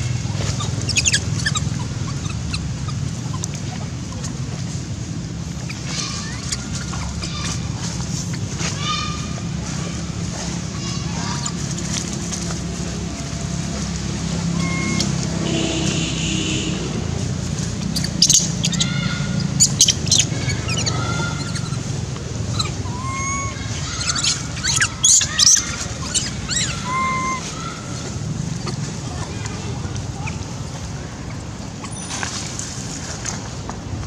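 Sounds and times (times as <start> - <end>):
short high chirping calls: 0.6 - 3.8, 14.6 - 15.1, 17.8 - 21.9, 22.5 - 27.7, 31.8 - 32.4.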